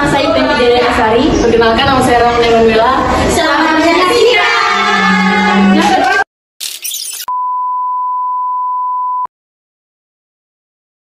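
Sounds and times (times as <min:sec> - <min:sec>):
high electronic beep: 0:06.7 - 0:09.3.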